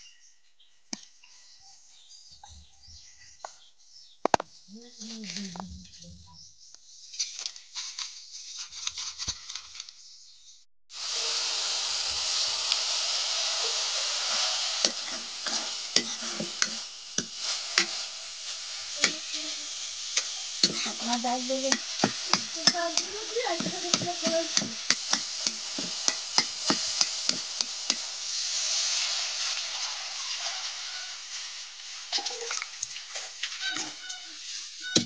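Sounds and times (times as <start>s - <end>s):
vegetables sizzling in a pan: 7.1s - 9.8s, 10.9s - 35.0s.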